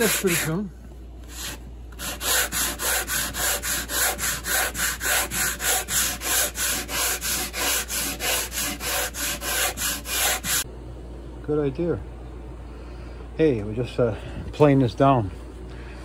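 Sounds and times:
sandpaper rubbing on wood: 0:00.0 - 0:00.7, 0:01.3 - 0:10.6.

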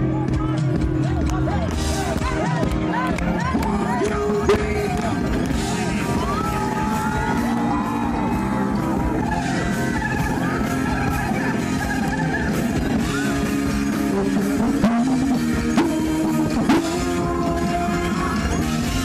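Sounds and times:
live rock band: 0:00.0 - 0:19.0
person singing: 0:09.2 - 0:19.0.

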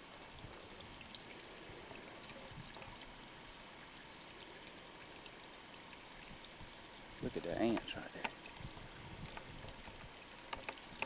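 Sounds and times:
faint water trickle: 0:00.0 - 0:11.0
light ticks: 0:07.7 - 0:08.6, 0:09.2 - 0:11.0.

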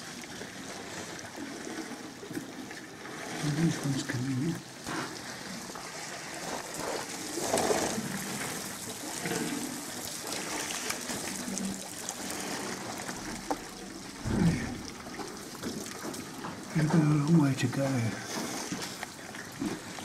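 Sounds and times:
water trickling and splashing: 0:00.0 - 0:20.0
elephant low rumble: 0:11.4 - 0:15.8.

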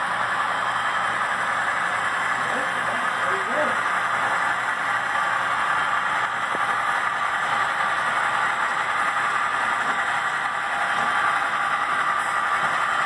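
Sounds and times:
model trains whirring on track: 0:00.0 - 0:13.0.

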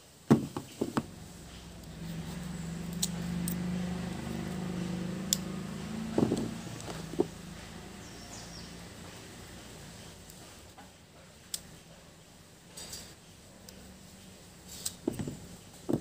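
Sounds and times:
passing vehicle engine hum: 0:00.7 - 0:10.7.

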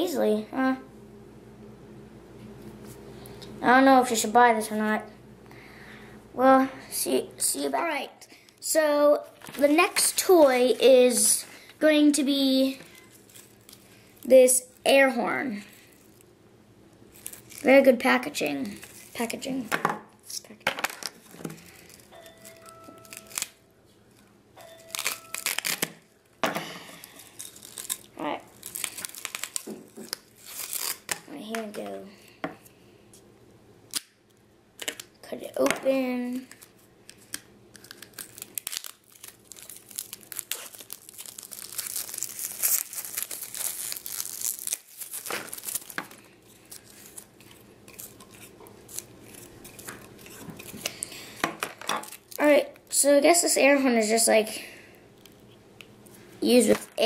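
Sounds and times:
plastic packaging crinkling: 0:09.3 - 0:11.4, 0:12.6 - 0:15.0, 0:15.6 - 0:16.3, 0:17.0 - 0:19.7, 0:20.8 - 0:31.7, 0:36.2 - 0:53.0.

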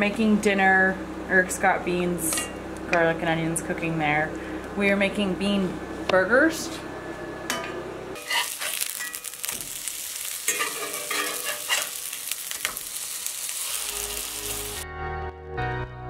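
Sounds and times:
spatula scraping a pan: 0:08.2 - 0:09.4, 0:10.5 - 0:12.1
burgers sizzling in oil: 0:08.2 - 0:14.8.

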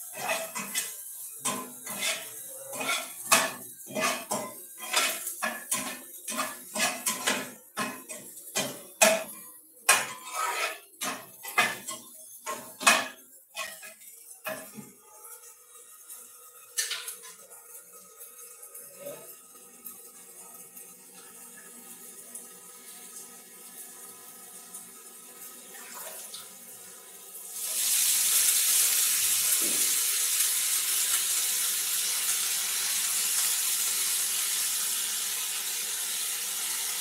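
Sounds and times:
metal spatula scraping frying pan: 0:00.0 - 0:14.9.

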